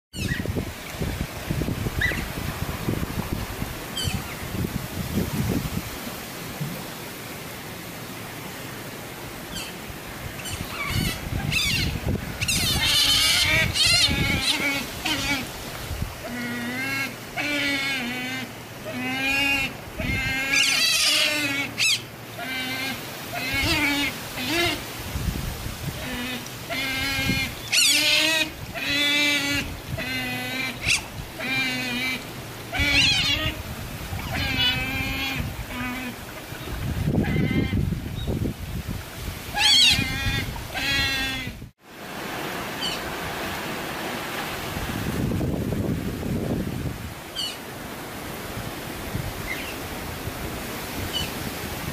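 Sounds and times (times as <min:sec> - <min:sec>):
otters whining calls: 0:00.1 - 0:00.5, 0:01.9 - 0:02.4, 0:04.0 - 0:04.4, 0:09.5 - 0:09.8, 0:10.4 - 0:15.5, 0:16.2 - 0:24.8, 0:26.0 - 0:38.4, 0:39.5 - 0:41.6
otters squealing: 0:26.1 - 0:36.2.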